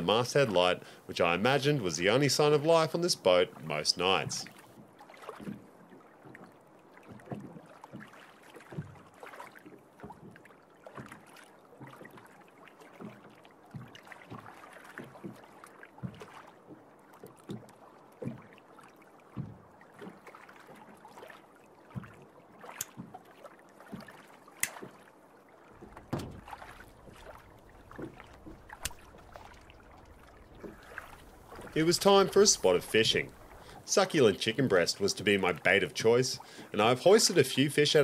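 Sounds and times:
waves lapping against boat hull: 0:00.0 - 0:38.0
low hum: 0:25.8 - 0:33.9.

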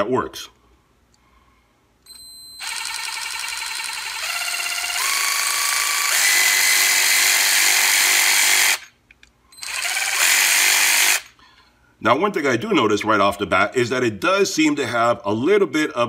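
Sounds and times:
cordless ratchet motor whirring: 0:02.1 - 0:08.9, 0:09.6 - 0:11.4.

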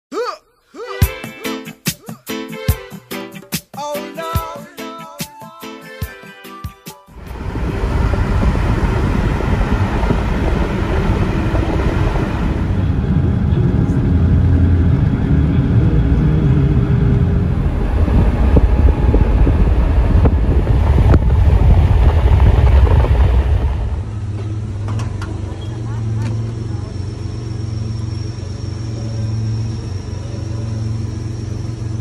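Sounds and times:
car road and wind noise: 0:07.2 - 0:32.0.

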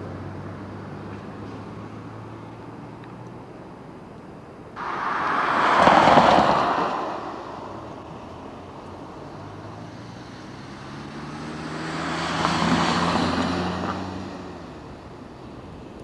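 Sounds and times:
passing vehicle engine droning: 0:04.8 - 0:16.0.

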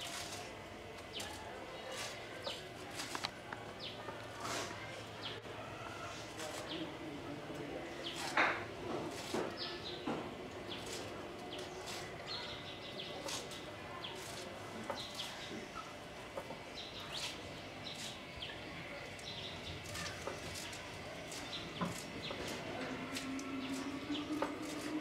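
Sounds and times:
birds chirping: 0:09.5 - 0:25.0
leaves snipped against blade: 0:13.2 - 0:14.5.

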